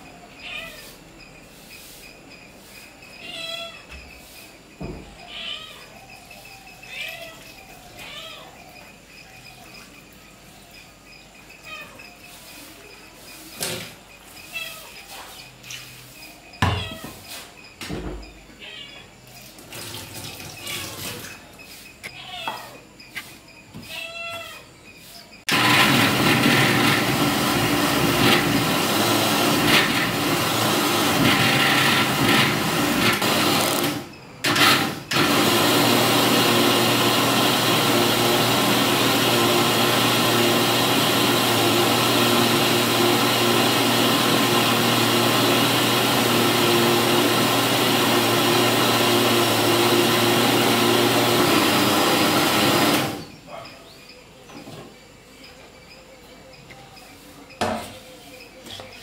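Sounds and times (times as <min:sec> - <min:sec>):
electric mixer grinder running: 0:25.5 - 0:53.2.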